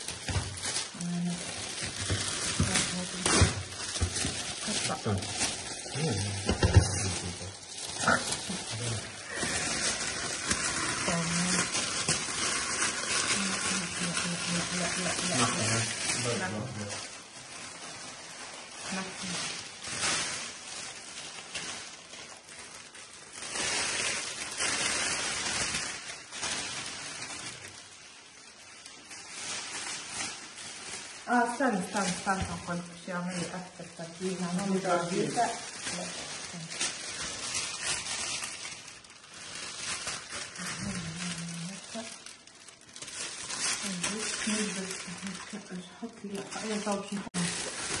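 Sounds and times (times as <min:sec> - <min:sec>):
cellophane crinkling and rustling: 0:00.0 - 0:48.0
person humming: 0:06.0 - 0:06.7.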